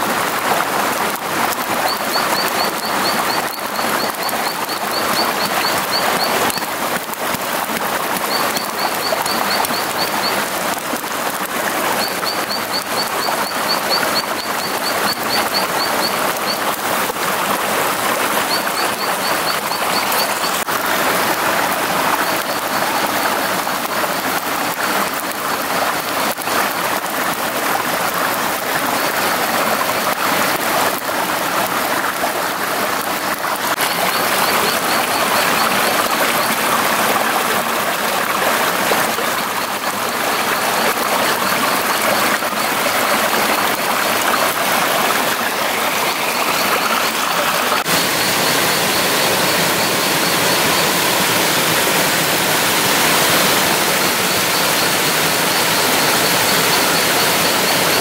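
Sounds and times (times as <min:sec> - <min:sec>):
flowing water: 0:00.0 - 0:58.0
rapid high chirping: 0:01.8 - 0:06.7, 0:18.2 - 0:20.7, 0:33.7 - 0:36.5, 0:45.4 - 0:58.0.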